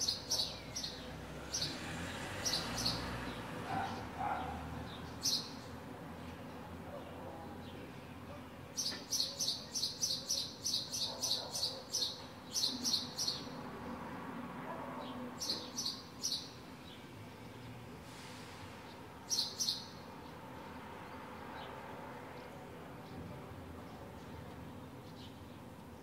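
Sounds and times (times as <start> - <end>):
sparrow chirping: 0.0 - 13.6, 15.0 - 17.1, 18.9 - 21.8.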